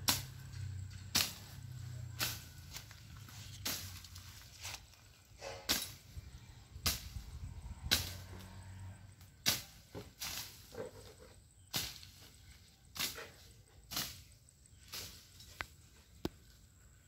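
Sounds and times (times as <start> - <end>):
blade swishing through weeds: 1.0 - 6.1, 6.8 - 7.3, 9.4 - 11.1, 11.7 - 15.6.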